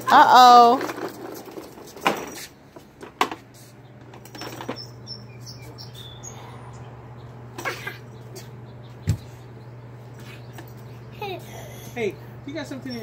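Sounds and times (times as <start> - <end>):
plastic toy truck on concrete: 0.3 - 3.4
low hum: 3.8 - 11.5.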